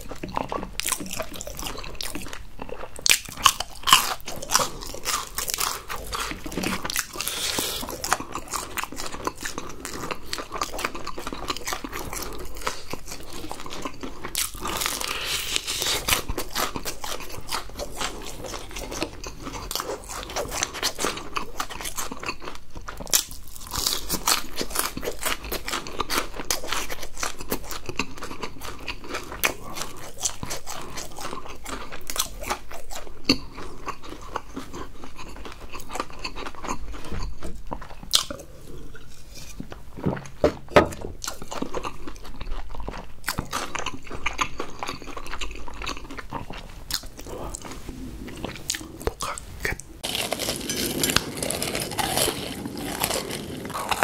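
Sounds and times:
crunching fried chicken: 0.0 - 39.5, 41.2 - 54.0
chewing: 0.0 - 54.0.

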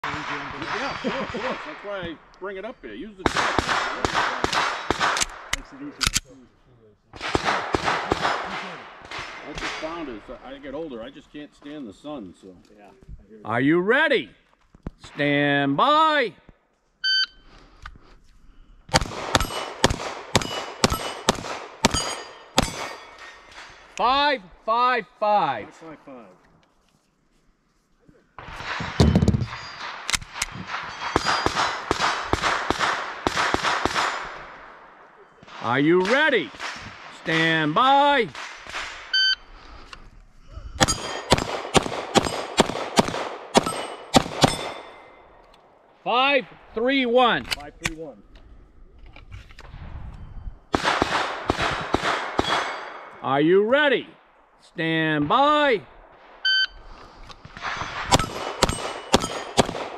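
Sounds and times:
gunshots: 0.0 - 2.2, 3.2 - 6.2, 7.2 - 10.5, 18.9 - 23.8, 28.4 - 39.2, 40.8 - 45.2, 50.7 - 53.2, 57.4 - 59.9
steel plates ringing clang: 21.9 - 24.0, 40.8 - 41.3, 58.1 - 59.6.

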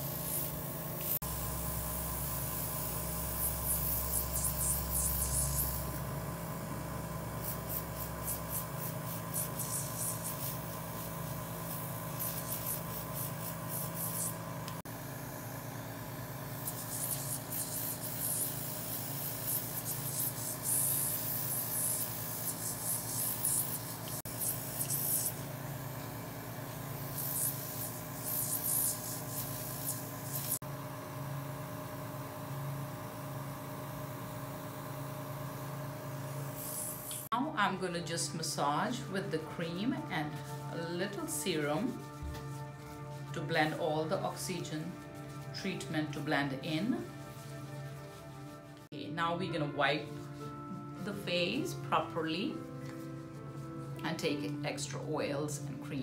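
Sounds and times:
oxygen spray hissing: 0.0 - 6.3, 7.3 - 30.6, 36.2 - 37.3.

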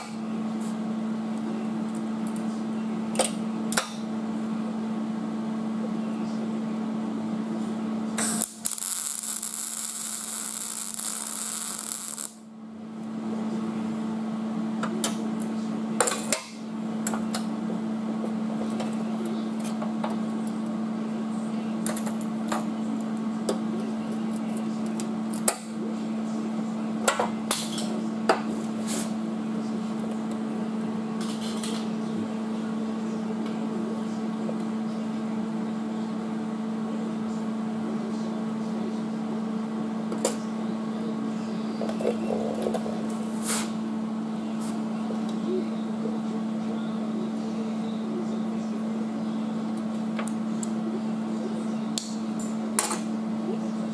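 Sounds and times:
steady hum: 0.0 - 53.9
welding arc crackling: 8.2 - 12.4.

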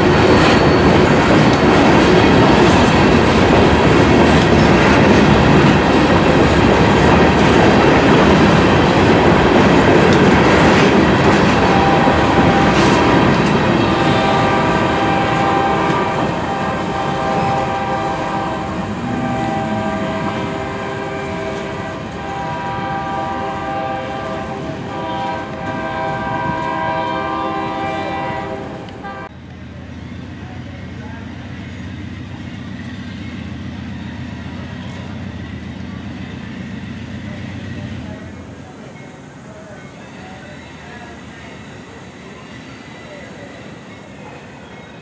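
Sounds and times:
train wheels clattering: 0.0 - 14.8.

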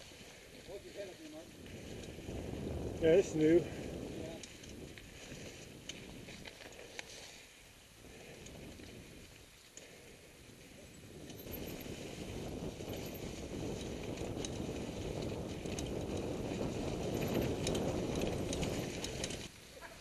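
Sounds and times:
bike clicks and rattles: 0.0 - 20.0
wind and tyre noise: 0.0 - 20.0.

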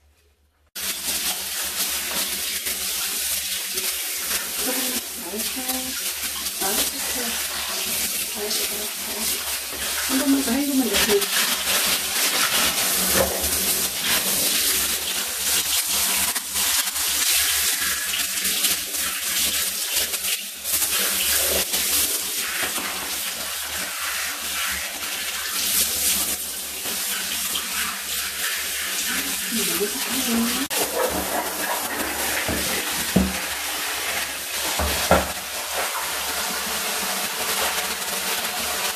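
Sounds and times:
shower head spraying water: 0.8 - 38.9.

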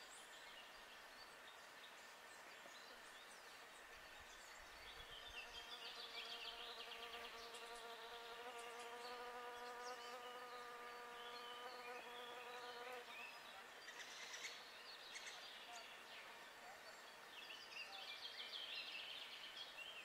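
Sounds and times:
flying insect buzzing: 5.3 - 13.4.

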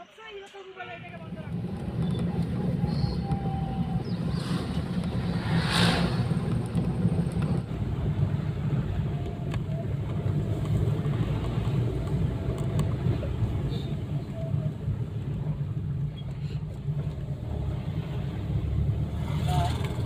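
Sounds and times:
car engine and tyres rumbling: 1.0 - 20.0
rushing air: 1.1 - 9.1.

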